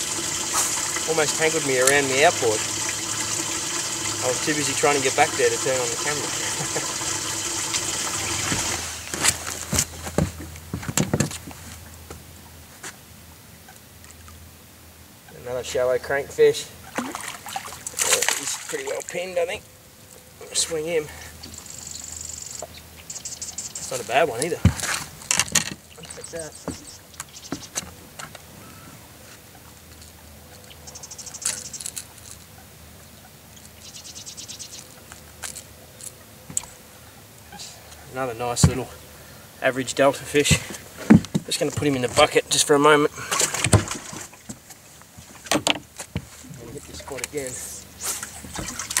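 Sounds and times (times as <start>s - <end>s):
fish splashing at water surface: 0.0s - 9.1s, 16.8s - 19.1s, 43.2s - 44.5s
running water: 0.0s - 10.6s, 16.4s - 19.6s, 20.4s - 28.3s, 39.6s - 49.0s.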